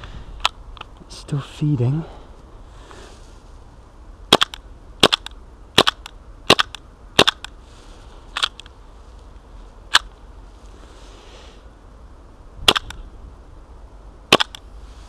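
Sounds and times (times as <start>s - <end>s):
airsoft pistol shots: 4.3s - 7.5s, 12.6s - 13.0s, 14.3s - 14.6s.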